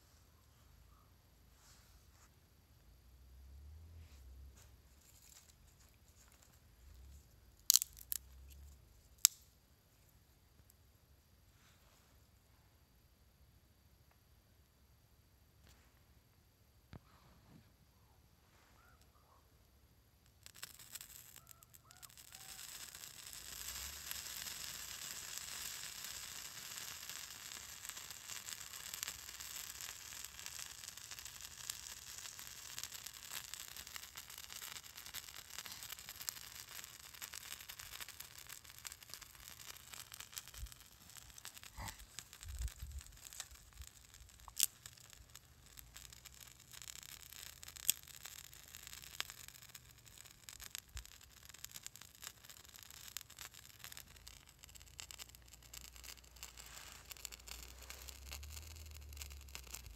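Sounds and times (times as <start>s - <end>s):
fire starter hissing and sizzling: 5.0s - 9.4s, 20.2s - 59.9s
sharp pops: 7.6s - 8.6s, 20.2s - 59.9s.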